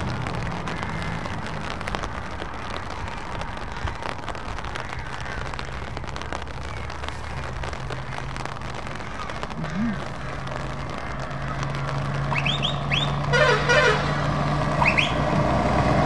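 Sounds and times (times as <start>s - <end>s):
rain pattering: 0.0s - 16.0s
truck diesel engines humming: 8.2s - 16.0s.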